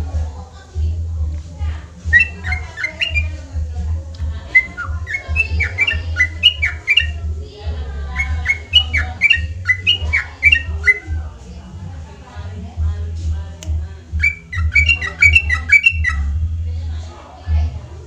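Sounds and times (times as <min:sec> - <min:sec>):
bird singing whistled notes: 0:02.1 - 0:03.4, 0:04.5 - 0:07.3, 0:08.1 - 0:11.2, 0:14.2 - 0:16.4.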